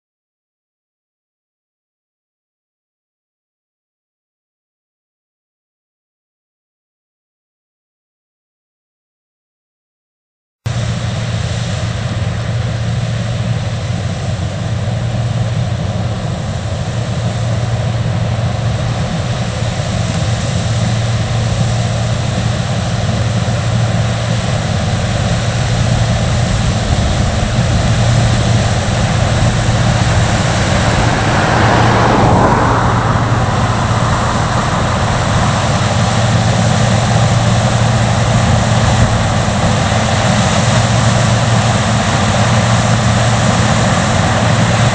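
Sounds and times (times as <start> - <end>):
combine harvester engine hum: 10.7 - 44.9
rushing machine noise: 10.7 - 44.9.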